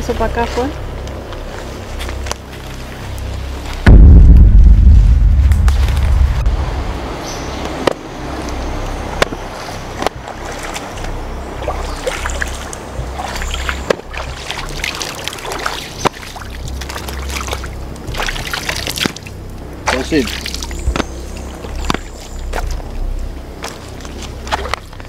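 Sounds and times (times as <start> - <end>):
low steady rumble: 0.0 - 25.0
footsteps crunching on leaves: 0.5 - 3.9, 20.5 - 25.0
shallow river trickling: 9.6 - 25.0.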